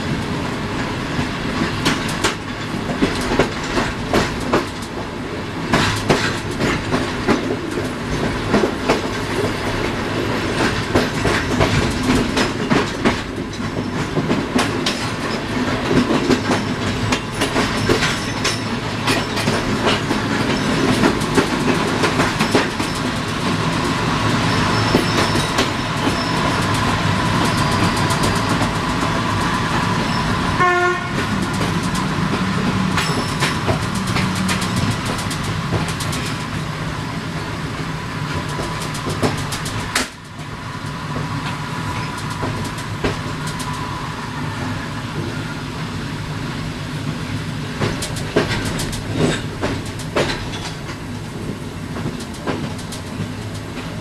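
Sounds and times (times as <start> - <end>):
train running rumble: 0.0 - 54.0
train wheels clacking: 0.2 - 45.4, 47.0 - 54.0
train horn blast: 30.6 - 31.3.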